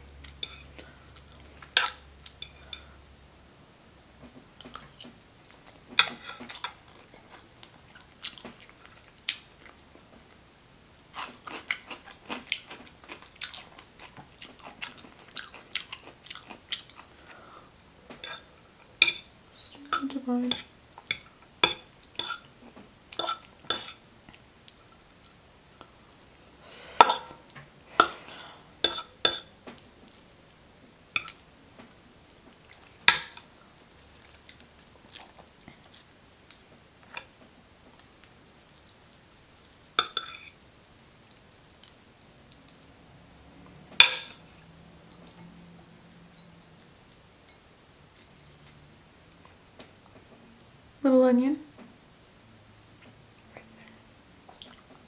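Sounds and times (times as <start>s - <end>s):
cutlery clinking on plate: 40.0s - 40.6s, 44.0s - 44.4s.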